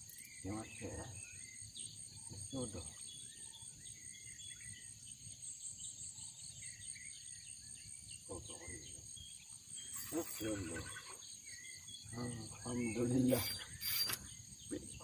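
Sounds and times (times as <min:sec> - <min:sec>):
insects shrilling: 0:00.0 - 0:15.0
short bird chirps: 0:09.8 - 0:15.0.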